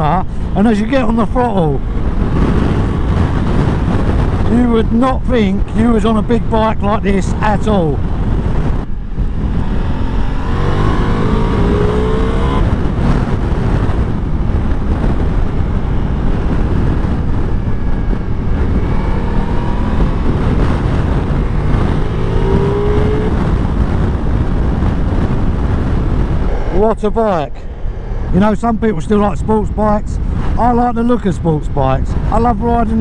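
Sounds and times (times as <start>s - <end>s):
wind rush on microphone: 0.0s - 33.0s
motorcycle engine accelerating: 8.0s - 30.6s.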